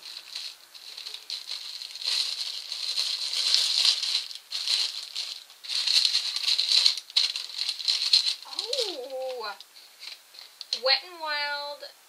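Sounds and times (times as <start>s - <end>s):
packaging crinkling and rustling: 0.0s - 10.8s.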